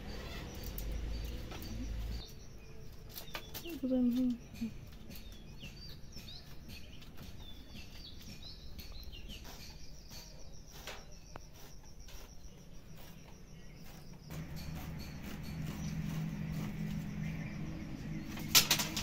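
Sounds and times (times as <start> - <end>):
small birds chirping: 0.0 - 19.0
high-pitched insect note: 8.3 - 19.0
handloom clicks: 18.3 - 19.0.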